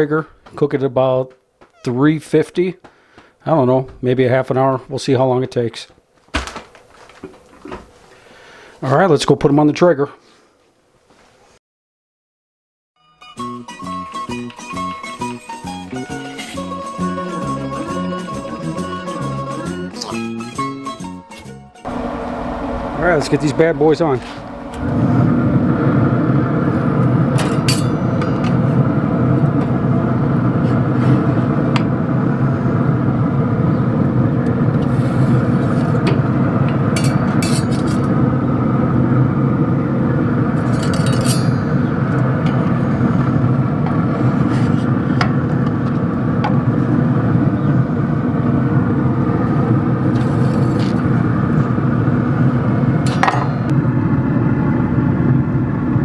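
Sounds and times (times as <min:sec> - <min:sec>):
low machine hum: 0:21.8 - 0:56.0
metal clinks and scrapes: 0:40.6 - 0:41.7.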